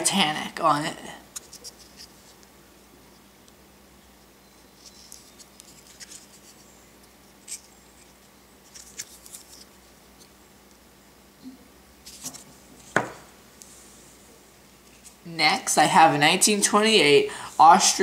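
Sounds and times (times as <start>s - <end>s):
fingers handling cardboard: 4.7s - 6.7s.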